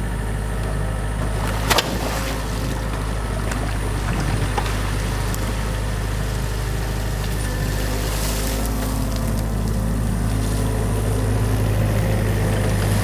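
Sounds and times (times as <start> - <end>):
diesel engine running: 0.0 - 13.0
bucket splashing through water: 1.3 - 2.8.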